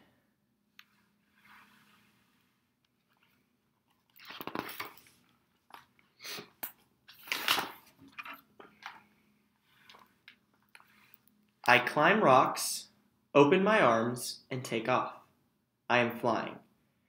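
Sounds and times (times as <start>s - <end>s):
book pages turning: 3.0s - 11.2s.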